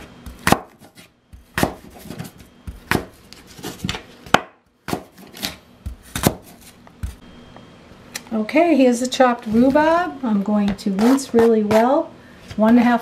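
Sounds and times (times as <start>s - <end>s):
knife chopping on cutting board: 0.0s - 7.2s, 10.7s - 11.9s.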